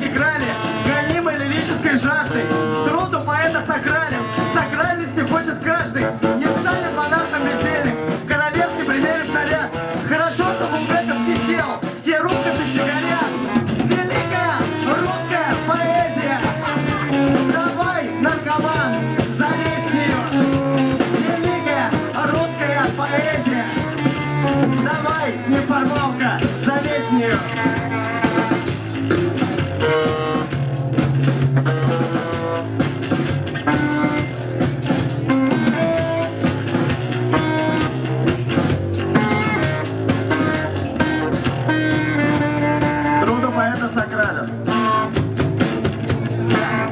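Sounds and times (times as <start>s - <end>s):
man singing: 0.0s - 28.8s, 46.4s - 46.9s
drum kit: 0.0s - 46.9s
electric guitar: 0.0s - 46.9s.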